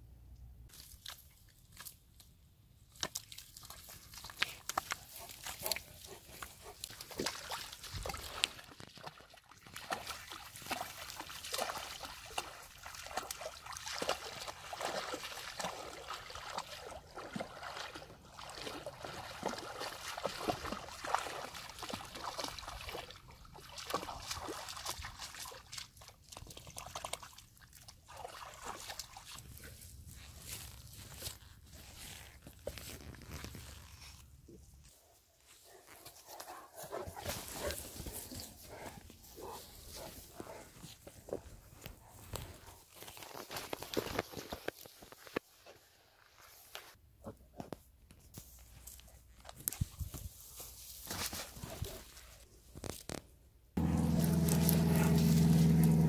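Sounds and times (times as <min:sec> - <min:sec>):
dogs splashing through water: 0:03.0 - 0:30.0, 0:53.8 - 0:56.0.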